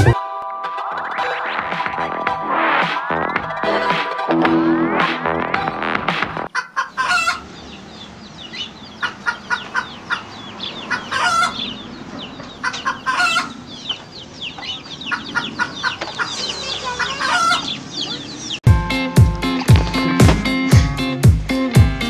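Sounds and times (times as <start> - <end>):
chicks peeping: 5.5 - 21.1
chicken clucking: 6.5 - 18.6.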